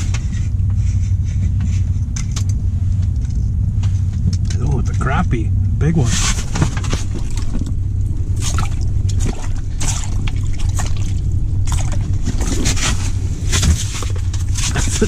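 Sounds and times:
steady low rumble: 0.0 - 15.0
water trickling and splashing: 6.8 - 15.0.

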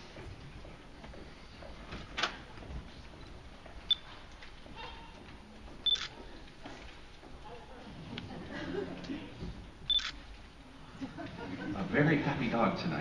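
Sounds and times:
murmur of large hall: 0.0 - 13.0
camera shutter clicks: 5.9 - 6.2, 9.9 - 10.2.

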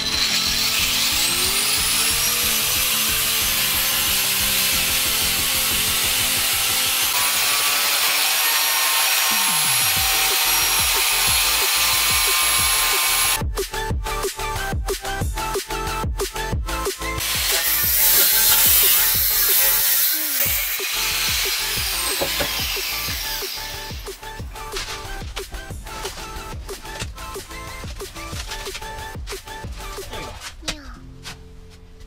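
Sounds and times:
angle grinder cutting metal: 0.0 - 13.4, 17.2 - 27.7
background music with a beat: 9.4 - 19.6, 20.5 - 30.4.

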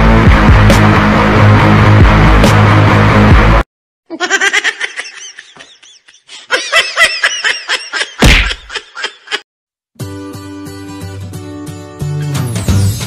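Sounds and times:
person laughing in high bursts: 4.1 - 9.4
background music: 10.0 - 13.0.

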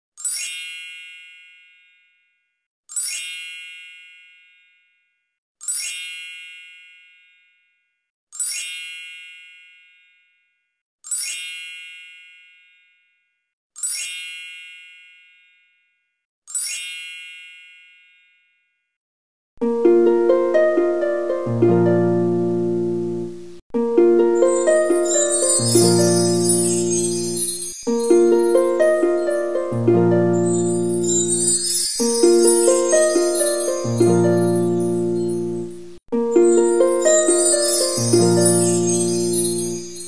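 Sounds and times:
high-pitched ringing chime: 24.4 - 40.0.

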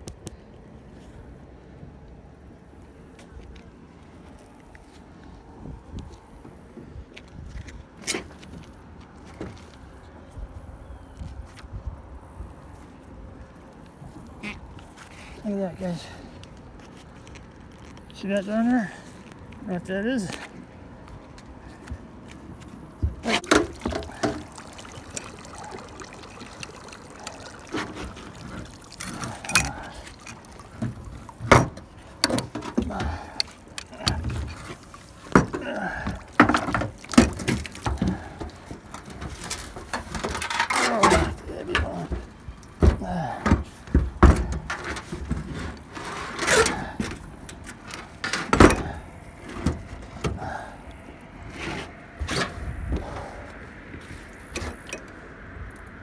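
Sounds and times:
water splashing and dripping: 21.1 - 45.5
wet metal clanking on boards: 23.0 - 25.8, 27.2 - 50.7.

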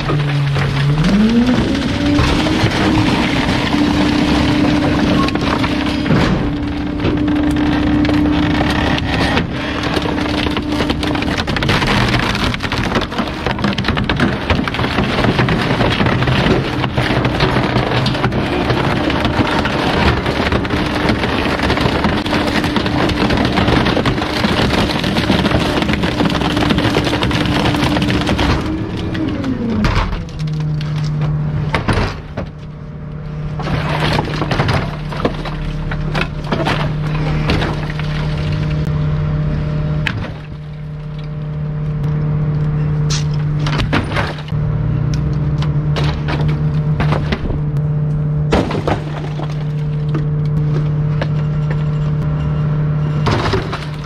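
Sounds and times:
bulky items cracking and snapping: 0.0 - 38.9, 40.0 - 52.3
waste truck engine drone: 0.0 - 54.0.

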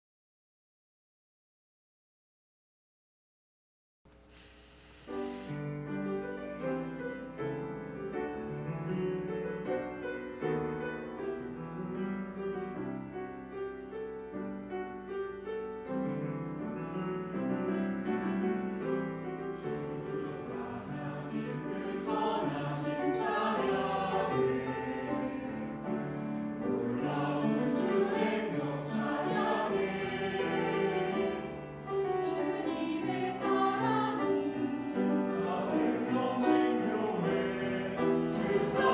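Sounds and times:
piano accompaniment: 5.1 - 38.9
choir singing: 18.8 - 38.9.

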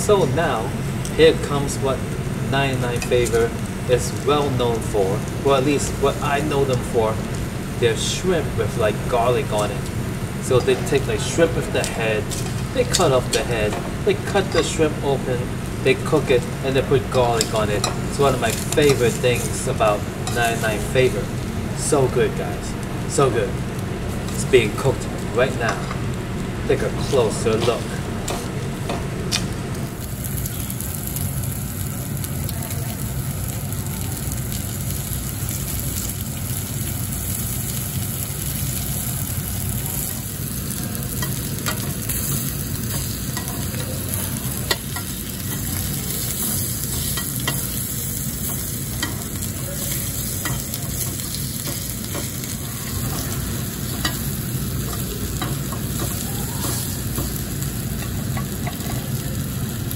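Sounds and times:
low steady hum: 0.0 - 59.9
shrimp sizzling on a grill: 0.0 - 59.9
metal tongs scraping a grate: 44.7 - 57.4.

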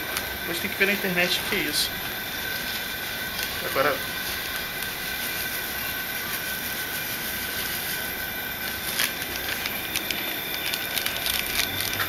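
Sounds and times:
gas burner rushing: 0.0 - 12.0.

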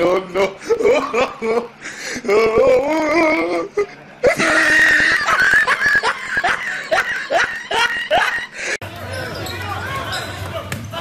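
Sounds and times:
person laughing and exclaiming: 2.3 - 8.8.

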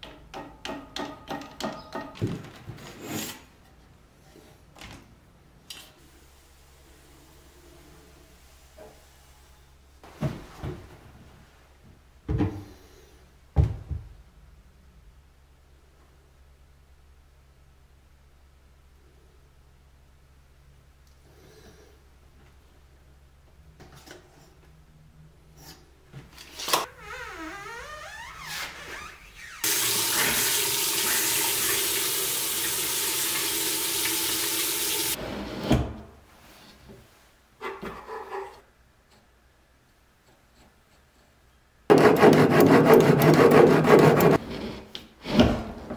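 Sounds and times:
faucet water running into sink: 29.6 - 35.2.

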